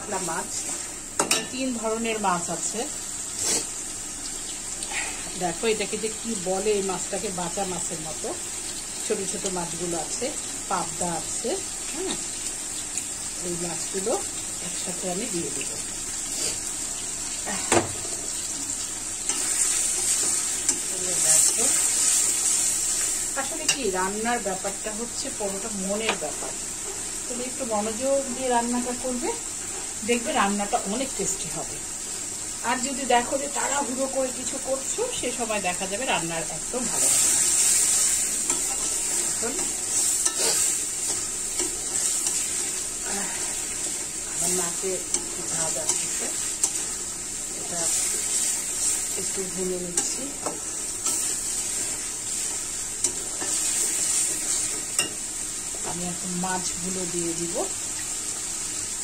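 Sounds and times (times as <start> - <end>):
masala sizzling in a pan: 0.0 - 59.0
spatula stirring and scraping: 36.8 - 47.2.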